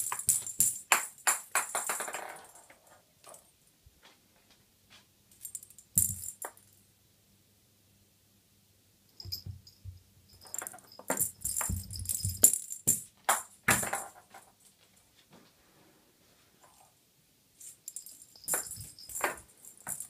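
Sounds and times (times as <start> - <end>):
bell toy jingling: 9.2 - 13.1, 17.6 - 20.0.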